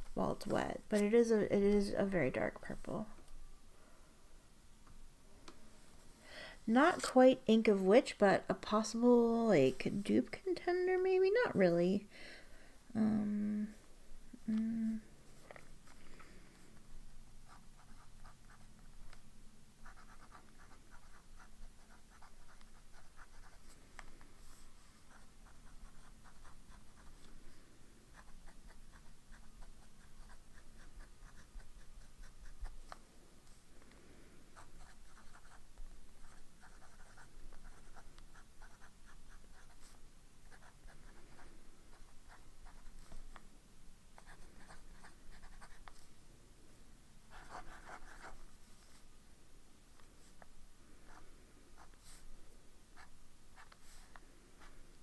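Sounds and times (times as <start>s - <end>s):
pen nib scratching on paper: 19.8s - 23.8s, 28.1s - 33.0s, 34.6s - 43.4s.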